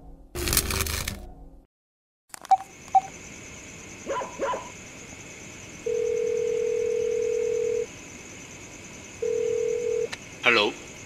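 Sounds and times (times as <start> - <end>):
keypad beeps: 2.4 - 3.1
dog barking: 4.1 - 4.7
phone ringback tone: 5.9 - 7.9, 9.2 - 10.1.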